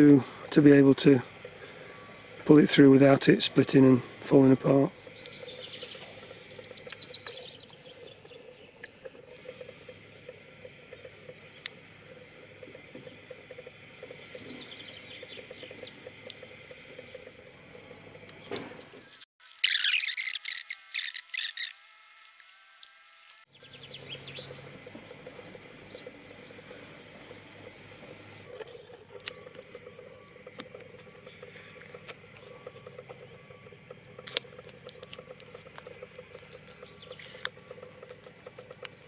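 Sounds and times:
high chirps: 19.6s - 21.7s.

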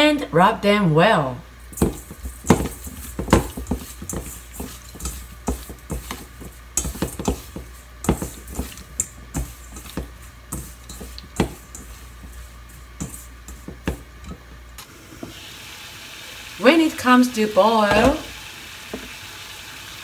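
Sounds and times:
hands squelching strips in metal bowl: 1.6s - 14.6s.

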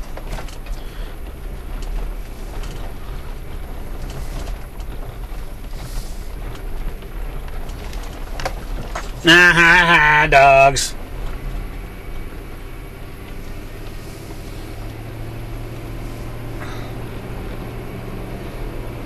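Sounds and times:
faint clicks and rattles: 0.0s - 9.3s
car engine and road rumble: 0.0s - 19.0s.

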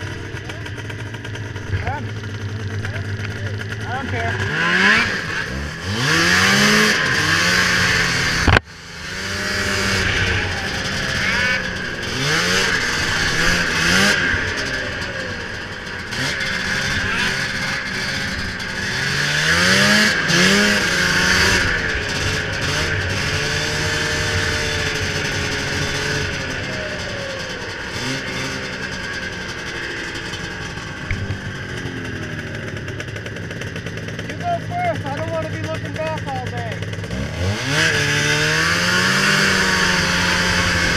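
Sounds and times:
snowmobile engine revving: 0.0s - 40.9s.

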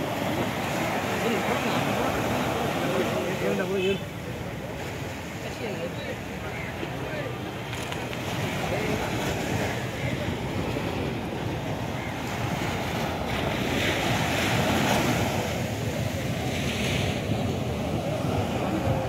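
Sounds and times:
small waves breaking on shore: 0.0s - 19.0s
wind buffeting microphone: 6.3s - 19.0s.

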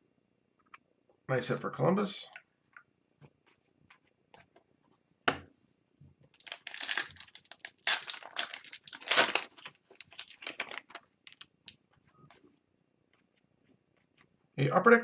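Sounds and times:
foil wrapper crinkling and tearing: 6.4s - 11.5s.

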